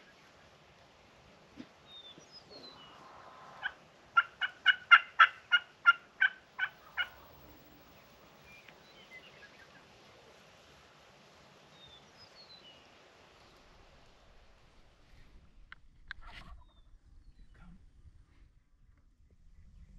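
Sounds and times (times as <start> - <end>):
faint songbird chirps: 1.8 - 3.7, 6.6 - 10.1, 11.7 - 14.3, 16.2 - 17.8
turkey call yelps: 2.6 - 7.6.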